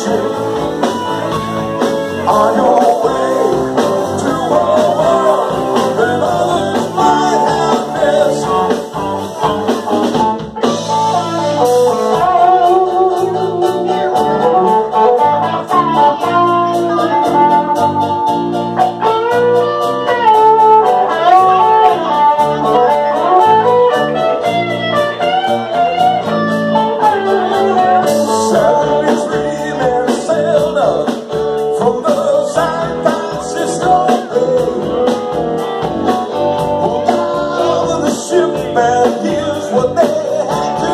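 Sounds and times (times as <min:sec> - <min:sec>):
man singing into microphone: 0:00.0 - 0:01.4, 0:02.1 - 0:09.1, 0:27.2 - 0:35.3, 0:36.6 - 0:40.9
live rock band playing: 0:00.0 - 0:40.9.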